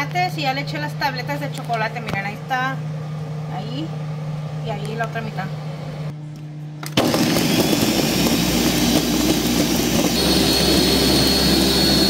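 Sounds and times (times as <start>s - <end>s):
blender motor: 6.9s - 12.0s.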